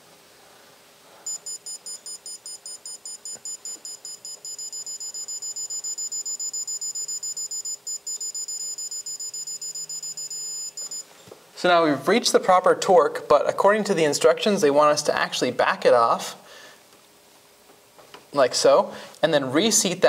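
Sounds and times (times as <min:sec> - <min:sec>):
torque wrench beeping: 0:01.3 - 0:11.1.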